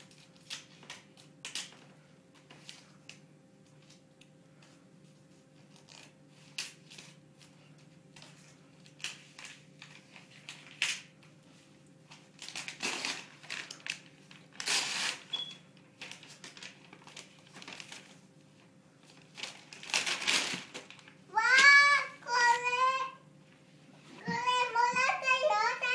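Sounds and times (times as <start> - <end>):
wrapping paper crinkling and tearing: 0.0 - 1.8, 5.6 - 7.6, 8.2 - 11.1, 12.1 - 15.4, 16.0 - 18.3, 19.0 - 22.8.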